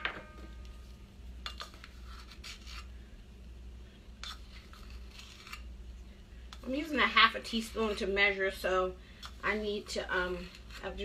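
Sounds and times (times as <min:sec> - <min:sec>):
low steady hum: 0:00.0 - 0:11.0
spoon scraping in a can: 0:01.4 - 0:03.0, 0:04.2 - 0:05.8, 0:09.2 - 0:11.0.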